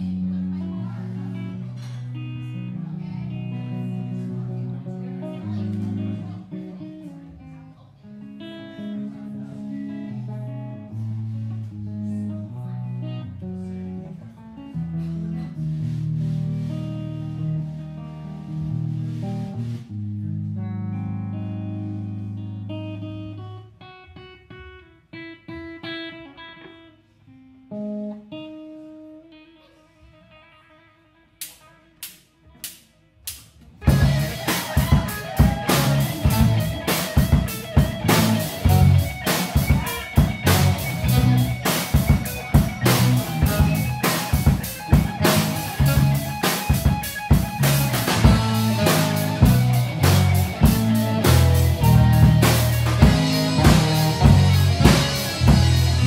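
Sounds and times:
live rock band playing: 0.0 - 7.0, 8.2 - 23.6, 33.8 - 56.0
guitar picking single notes: 0.0 - 32.7, 33.8 - 56.0.

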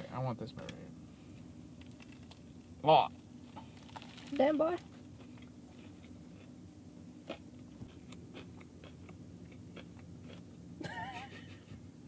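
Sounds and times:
faint low hum: 0.0 - 12.0
person chewing crunchy food: 5.2 - 6.6, 7.2 - 10.6.

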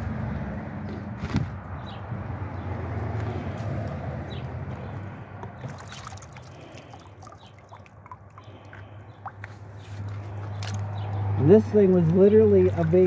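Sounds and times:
water drips and trickles: 5.4 - 13.0
water sloshing in plastic tub: 5.4 - 13.0.

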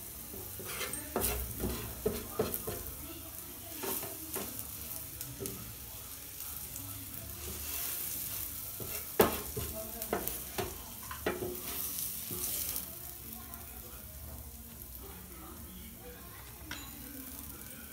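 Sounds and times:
food sizzling in a frying pan: 0.0 - 17.9
metal utensil tapping and scraping pan: 0.3 - 2.9, 3.8 - 4.6, 8.8 - 12.7.

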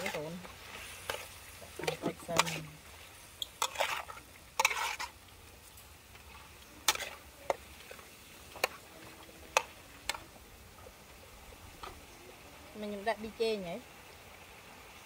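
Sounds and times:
spatula scraping wok: 0.0 - 10.4.

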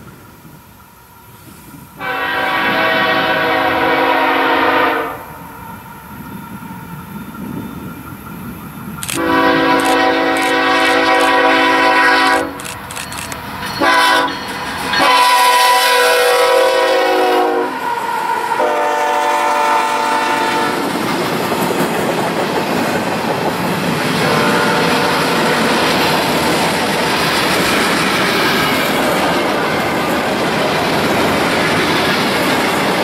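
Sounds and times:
locomotive air horn: 2.0 - 5.4, 9.0 - 12.7, 13.8 - 14.4, 15.0 - 17.9, 18.5 - 20.9, 24.2 - 25.6.

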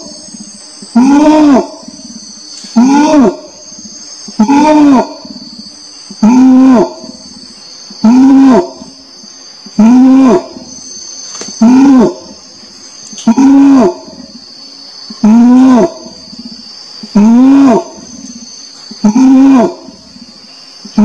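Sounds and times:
orangutan calls: 0.0 - 14.4, 15.1 - 21.0
high-pitched hiss: 0.0 - 21.0.

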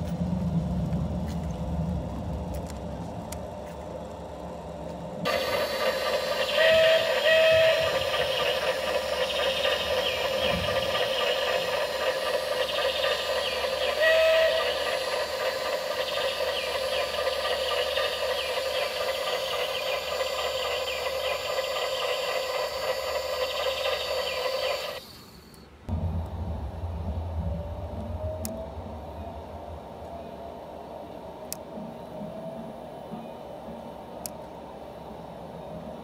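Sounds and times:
steam engine hissing and chuffing: 5.2 - 33.0
steam whistle toot: 5.3 - 11.0, 13.4 - 15.4.

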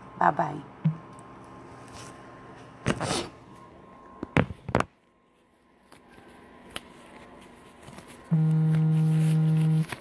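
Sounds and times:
loud low buzzing tone: 8.3 - 9.9.

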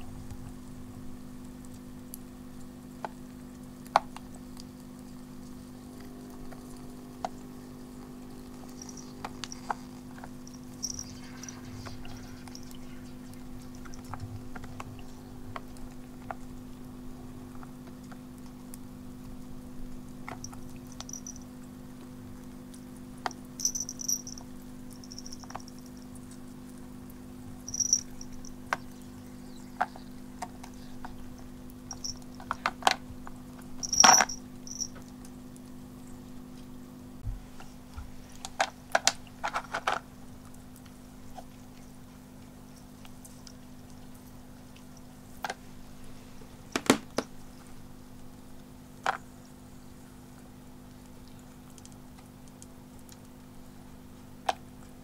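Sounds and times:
fountain pump humming: 0.0 - 37.2
ice cubes clinking in bowl: 33.8 - 35.0.

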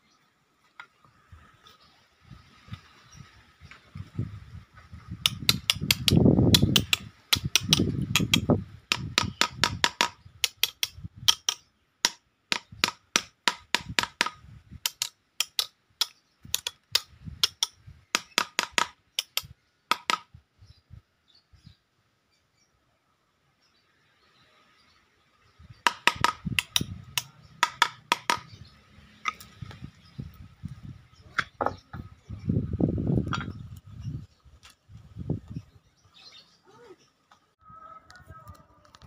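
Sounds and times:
hammer striking nail: 5.2 - 20.3, 25.9 - 28.5.

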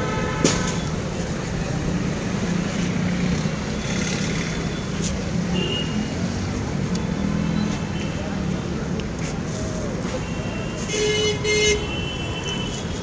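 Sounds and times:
vehicle engines running: 0.0 - 11.0.

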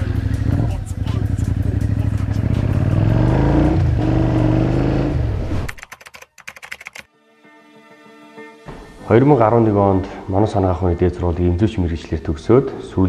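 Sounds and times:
faint music: 0.0 - 4.9
motorcycle engine revving: 0.0 - 5.7
keyboard typing clicks: 5.7 - 7.1.

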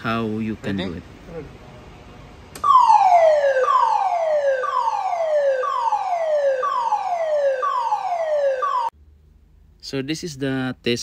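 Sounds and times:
downward sweeping alarm tone: 2.6 - 8.9.

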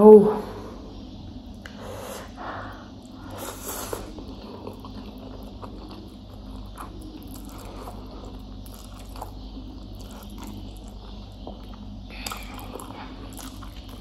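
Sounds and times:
soft wet chewing: 3.0 - 14.0.

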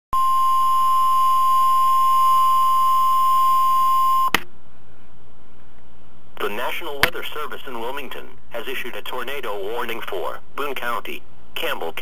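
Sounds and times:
faint radio hiss: 4.4 - 12.0.

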